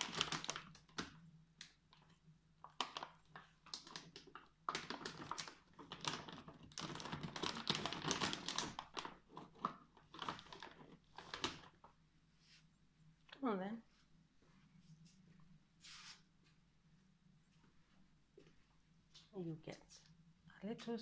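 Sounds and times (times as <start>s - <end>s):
snack packet crinkling: 0.0s - 11.9s.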